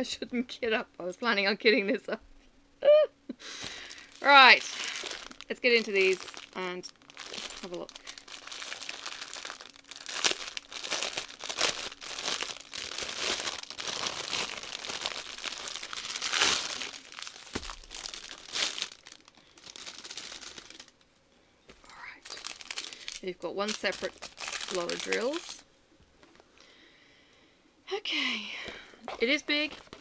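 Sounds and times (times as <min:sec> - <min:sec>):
plastic wrapping crinkling: 0:03.6 - 0:21.1, 0:21.7 - 0:25.6, 0:29.0 - 0:30.0.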